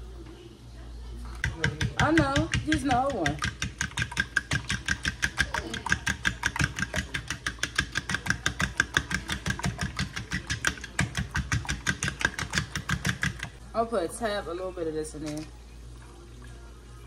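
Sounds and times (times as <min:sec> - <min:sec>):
fork whisking eggs in bowl: 0:01.4 - 0:13.6.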